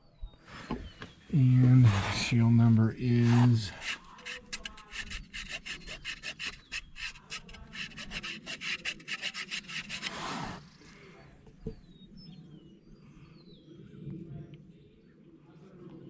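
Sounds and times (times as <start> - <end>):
hand rubbing metal plate: 1.7 - 10.6.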